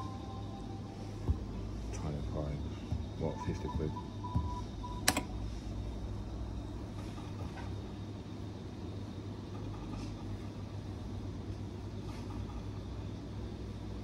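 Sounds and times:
betting terminal humming: 0.0s - 9.5s.

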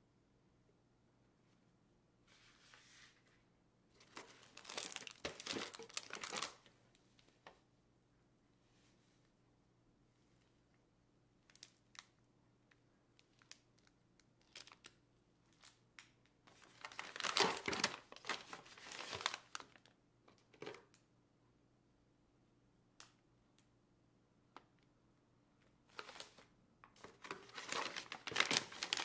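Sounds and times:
plastic and paper crinkling: 4.0s - 6.7s, 13.2s - 15.8s, 16.5s - 20.8s, 25.9s - 29.0s.

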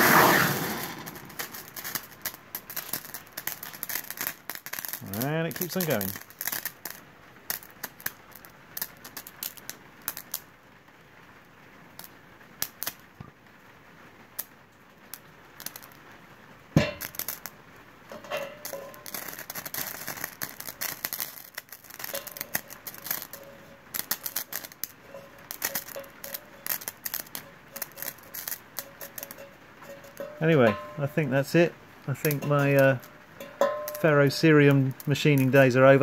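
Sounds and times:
burning chips crackling: 0.0s - 36.0s.

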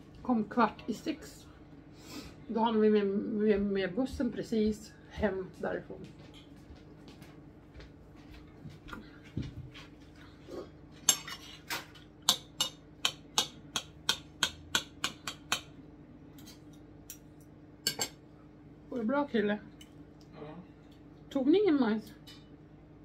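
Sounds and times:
knife and fork scraping a plate: 10.6s - 12.0s.

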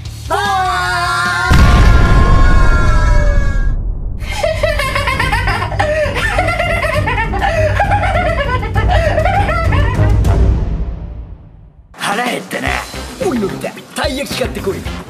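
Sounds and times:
low rumble: 1.5s - 7.2s
man laughing maniacally: 4.2s - 10.4s.

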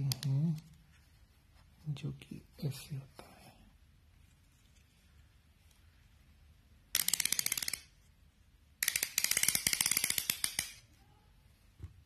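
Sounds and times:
plastic mount detents clicking: 6.9s - 7.9s, 8.8s - 10.8s.

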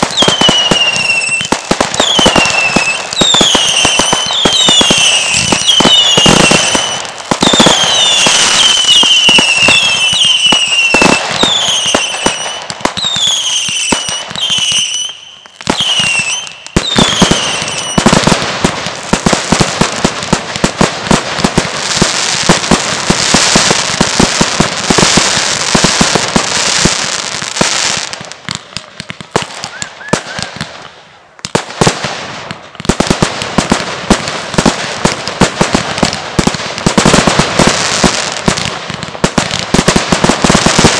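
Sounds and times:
firework whistles: 0.0s - 18.4s, 29.5s - 31.2s
firework bangs: 0.0s - 40.9s
firework crackling bursts: 0.0s - 40.9s.

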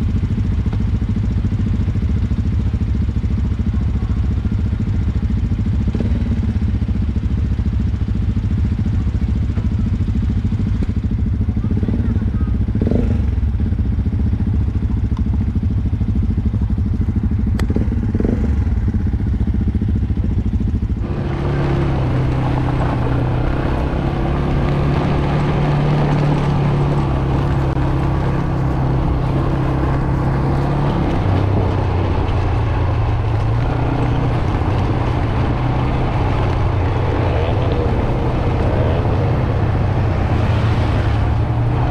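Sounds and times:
atv engine: 0.0s - 41.9s
ride noise: 0.0s - 41.9s.

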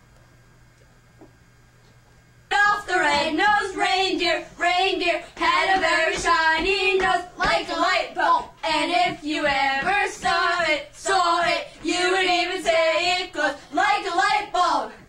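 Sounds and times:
children singing: 2.5s - 15.0s.

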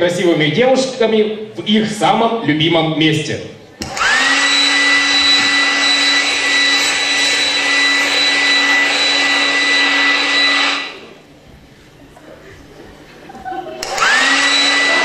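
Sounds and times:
electric dryer motor whining: 3.8s - 11.3s, 13.8s - 15.0s.

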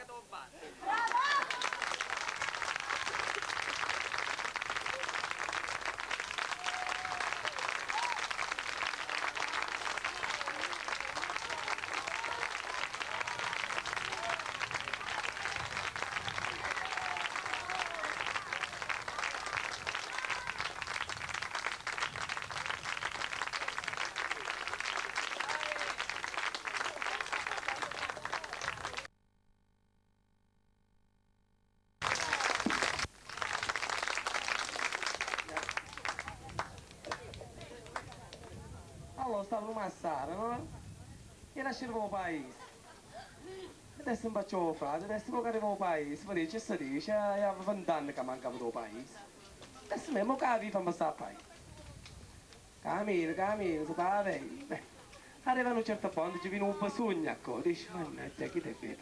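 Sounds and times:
audience applauding: 0.8s - 29.1s, 32.0s - 38.9s
faint voices: 34.7s - 39.2s.

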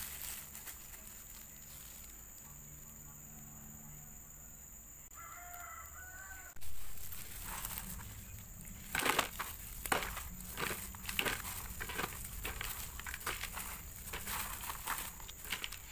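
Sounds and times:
rooster crowing faintly: 5.1s - 8.4s
low steady hum: 6.5s - 15.9s
dry noodles crunching: 6.6s - 15.9s.

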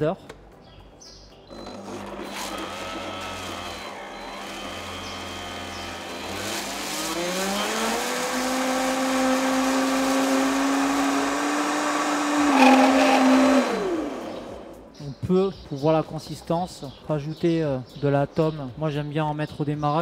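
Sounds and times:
blender motor whine: 1.5s - 14.9s.

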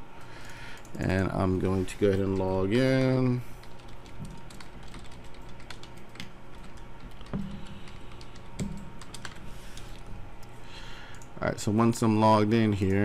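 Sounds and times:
keyboard typing clicks: 3.6s - 9.4s.

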